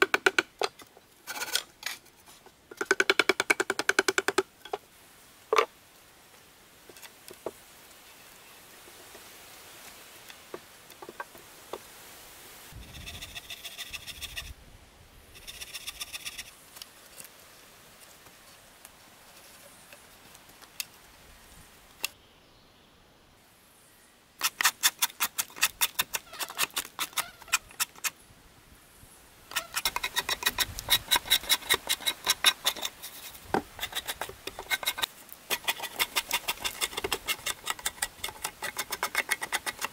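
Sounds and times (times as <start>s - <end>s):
drawknife scraping bark: 0.7s - 2.0s, 12.9s - 14.5s, 15.3s - 17.3s, 24.4s - 28.2s, 29.5s - 39.9s.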